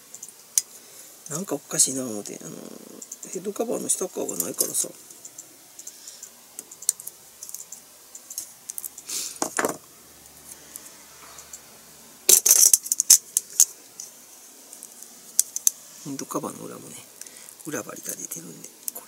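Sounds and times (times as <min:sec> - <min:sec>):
plastic parts clicking and rattling: 0:12.3 - 0:14.1.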